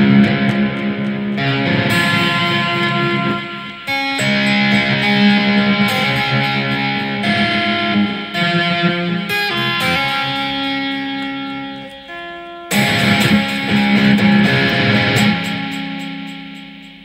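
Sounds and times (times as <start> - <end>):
guitar playing sustained chords: 0.0 - 17.0.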